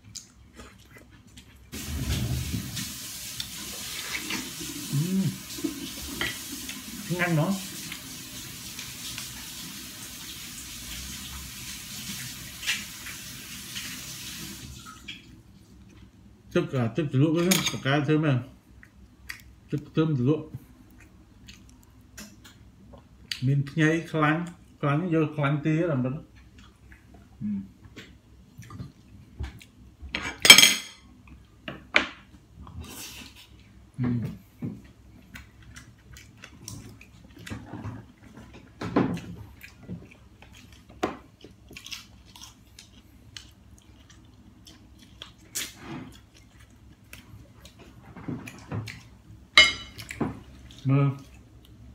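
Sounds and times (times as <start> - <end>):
steady hiss: 1.8 - 14.8
sharp dish clink: 30.4 - 31.0, 49.6 - 50.0
metal spoon clinking on dishes: 49.6 - 50.0.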